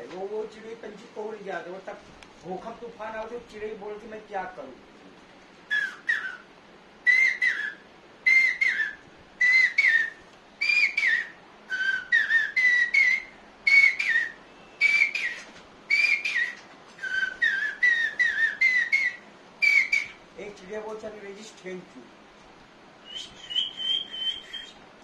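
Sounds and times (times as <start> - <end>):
man whistling bird call: 5.7 - 20.2, 23.0 - 24.8.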